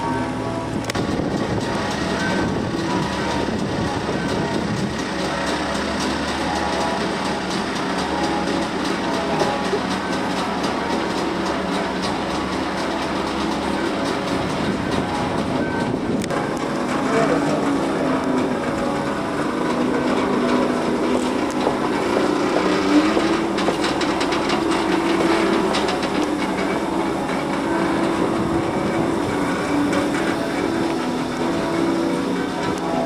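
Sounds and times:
van engine running: 0.0s - 33.0s.

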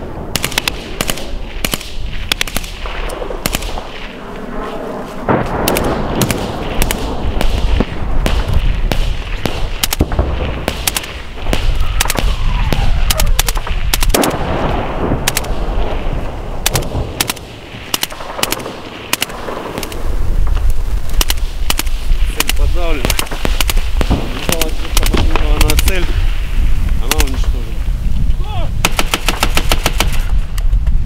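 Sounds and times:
low rumble: 0.0s - 28.9s
small-arms gunfire: 0.3s - 4.1s, 5.3s - 15.8s, 16.6s - 20.0s, 21.2s - 26.0s, 28.8s - 30.3s.

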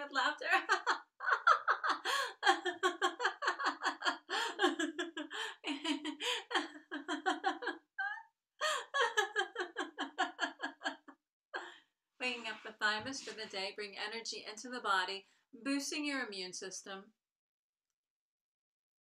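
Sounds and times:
woman laughing: 0.0s - 11.7s.

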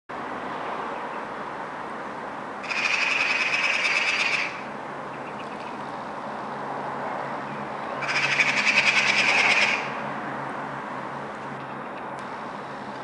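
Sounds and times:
steady background noise: 0.1s - 13.0s
magpie rattling chatter: 2.6s - 5.8s, 8.0s - 10.0s.

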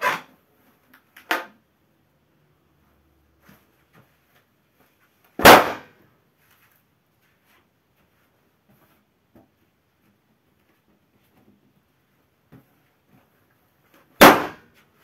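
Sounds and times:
balloon bursting: 5.4s - 6.0s, 14.2s - 14.7s.

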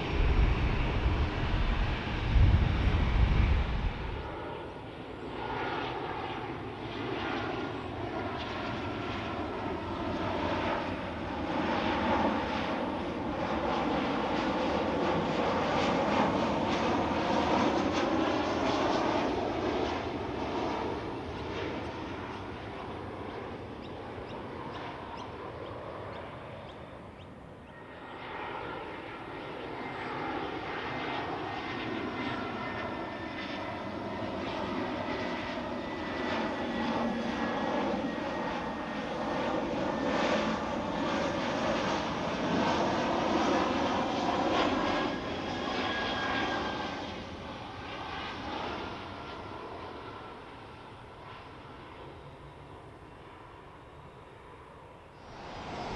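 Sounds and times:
jet engine roar: 0.0s - 55.9s
thin high whine: 55.2s - 55.9s.

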